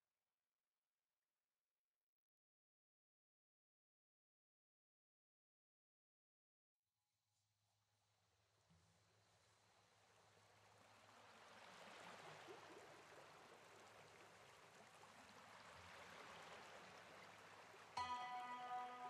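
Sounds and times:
music with sustained notes: 18.0 - 19.0.

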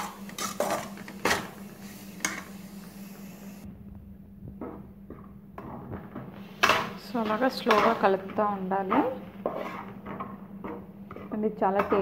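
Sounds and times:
coconut frying: 0.0 - 3.7, 5.6 - 12.0
low hum: 0.0 - 12.0
spatula scraping steel pan: 6.5 - 12.0.

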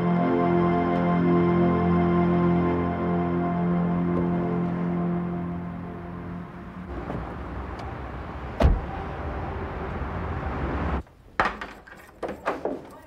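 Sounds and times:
soundtrack music: 0.0 - 11.0
car door thud: 8.6 - 8.9.

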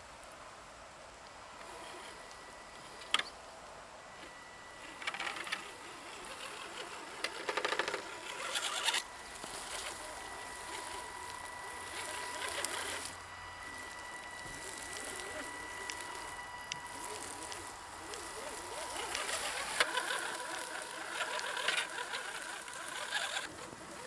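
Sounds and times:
rustling and crackling vegetation: 0.0 - 24.0
electric motor whine: 1.3 - 24.0.

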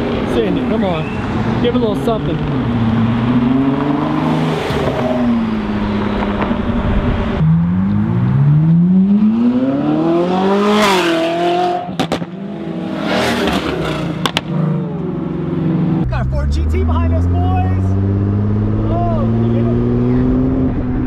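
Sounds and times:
car engine passing close: 0.0 - 21.0
sports car revving: 0.0 - 21.0
car accelerating away: 0.1 - 21.0.

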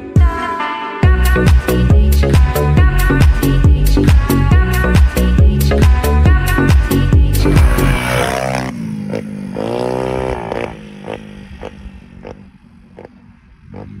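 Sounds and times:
moped engine revving: 5.8 - 14.0.

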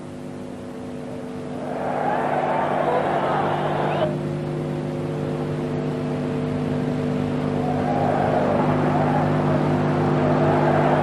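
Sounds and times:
steady low hum: 0.0 - 11.0
stadium crowd noise: 0.8 - 5.6, 7.1 - 11.0.

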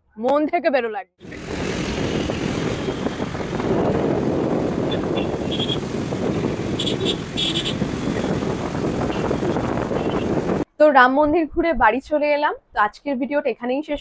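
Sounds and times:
road traffic rumble: 1.2 - 10.7
wind rushing: 1.2 - 10.7.

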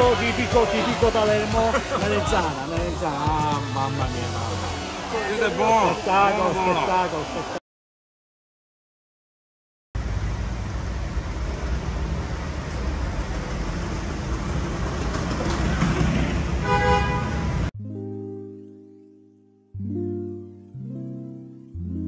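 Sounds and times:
steady traffic noise: 0.0 - 7.6, 10.0 - 17.7
car horn toot: 16.6 - 17.7
soft piano music: 17.8 - 22.0.

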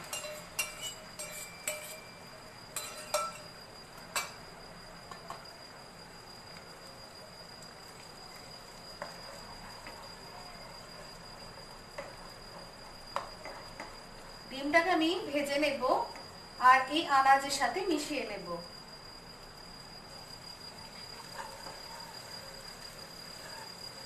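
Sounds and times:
spatula clinking against pan: 0.0 - 2.2, 2.8 - 3.5
eggs sizzling in oil: 0.0 - 18.3, 19.2 - 24.0.

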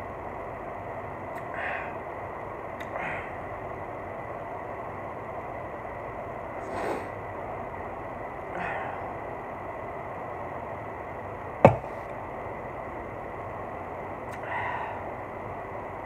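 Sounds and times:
soft breathy exhales: 6.6 - 7.2
can knocking on table: 11.7 - 11.9.

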